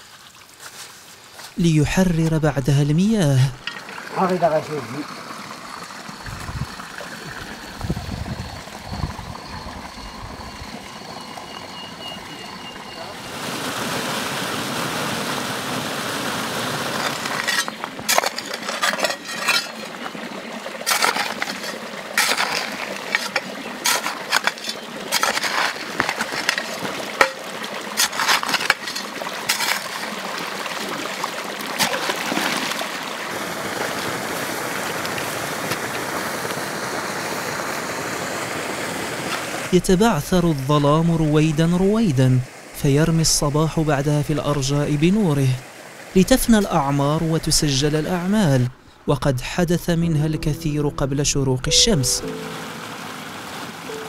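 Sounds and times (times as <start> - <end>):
water rushing in a channel: 1.3 - 50.4, 51.7 - 54.0
shovel knocking and splashing: 16.9 - 20.0, 20.8 - 30.2, 31.8 - 32.8.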